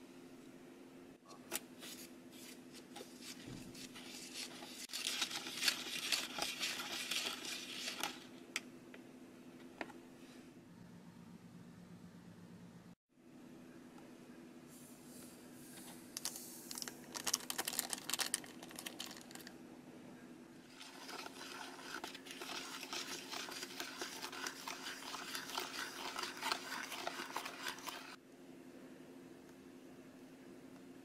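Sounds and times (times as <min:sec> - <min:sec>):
plastic spoon stirring and scraping: 0:01.5 - 0:08.4, 0:15.8 - 0:19.5, 0:20.6 - 0:28.2
foil sachet crinkling: 0:04.0 - 0:08.3, 0:16.2 - 0:19.5.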